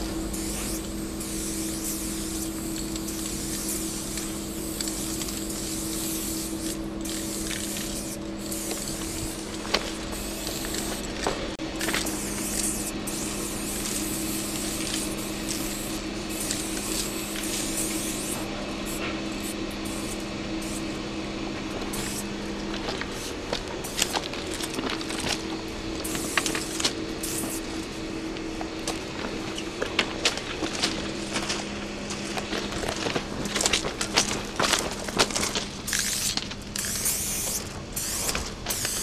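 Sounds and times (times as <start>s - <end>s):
spray paint cans hissing: 0.0s - 20.9s, 21.8s - 27.8s, 33.2s - 39.0s
steady low hum: 0.0s - 39.0s.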